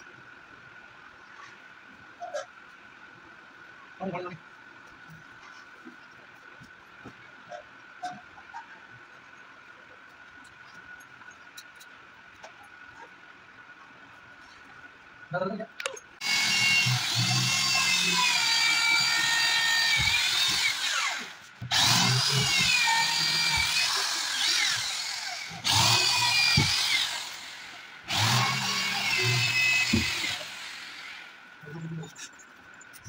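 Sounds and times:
electric drill boring into wood: 16.2 - 31.4.

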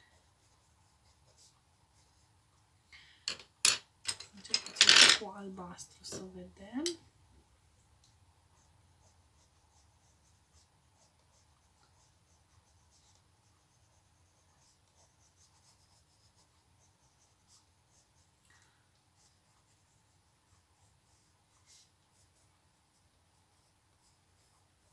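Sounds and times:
drawing tool scratching on paper: 8.6 - 18.3.

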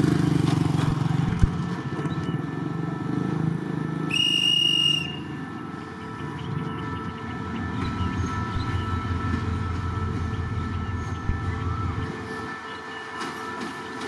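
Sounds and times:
idling diesel locomotive rumble: 0.0 - 14.0
shrill whistle blast: 4.1 - 5.4.

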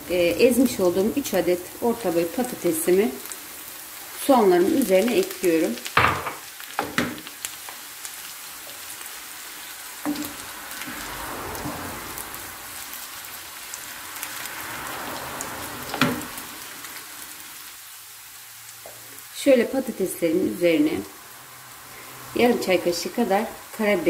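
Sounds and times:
food sizzling in frying pan: 0.0 - 24.0
wooden spoon knocking pan: 6.0 - 7.3, 10.1 - 10.4.

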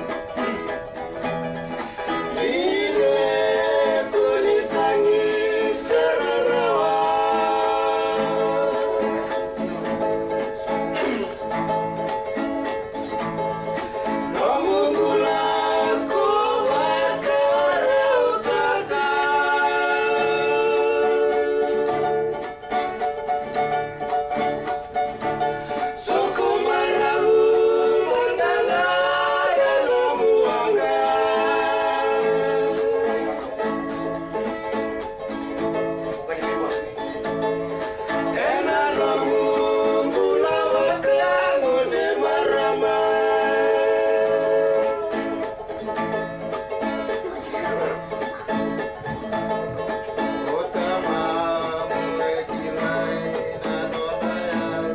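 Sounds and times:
strummed acoustic guitars: 0.0 - 54.9
men singing together: 1.8 - 10.1, 14.0 - 22.5, 24.7 - 33.8, 37.9 - 45.6, 49.6 - 54.9.

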